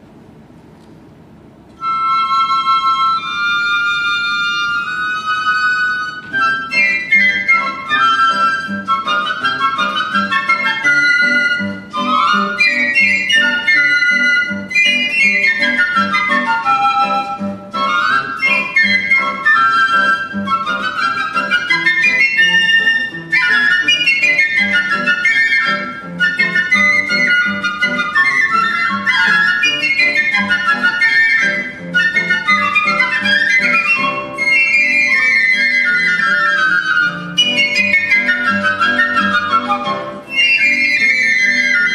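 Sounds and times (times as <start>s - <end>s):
piccolos playing fast runs: 1.9s - 41.9s.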